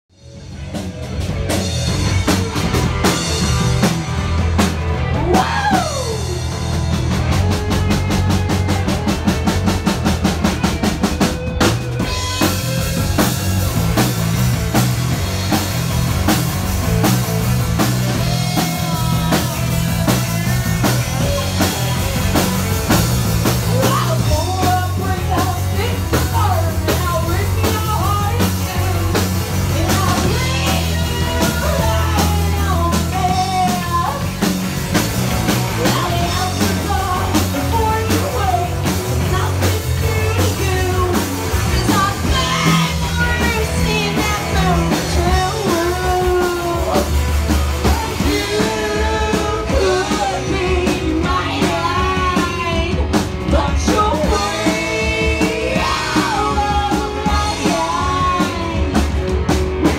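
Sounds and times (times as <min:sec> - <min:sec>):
bass and electric guitar riff: 0:00.0 - 0:59.9
drum kit playing: 0:00.1 - 0:59.9.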